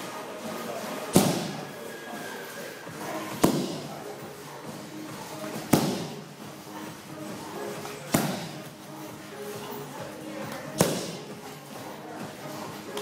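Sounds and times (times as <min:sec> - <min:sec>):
strikes slapping into pads: 0:01.1 - 0:01.5, 0:03.4 - 0:03.9, 0:05.6 - 0:06.2, 0:08.1 - 0:08.6, 0:10.8 - 0:11.2.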